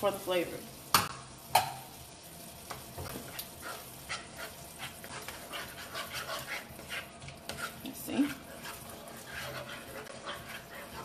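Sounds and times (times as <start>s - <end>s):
faint sizzle: 0.0s - 11.0s
sauce bubbling: 1.1s - 11.0s
spatula scraping pan: 3.0s - 11.0s.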